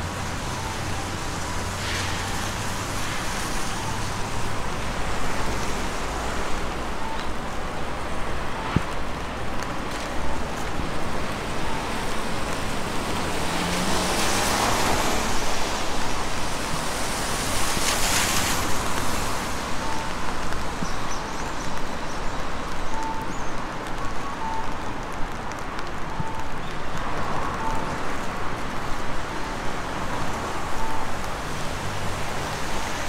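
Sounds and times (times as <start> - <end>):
tyre hiss on wet road: 1.2 - 6.9, 11.9 - 21.7.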